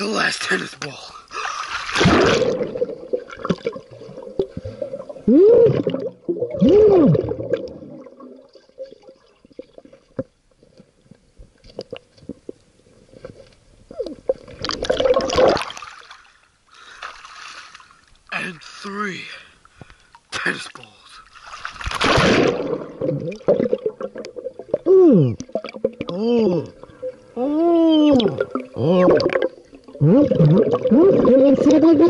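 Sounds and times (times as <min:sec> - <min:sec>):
water gurgling underwater: 0:01.4 - 0:10.3, 0:13.9 - 0:16.0, 0:21.9 - 0:32.0.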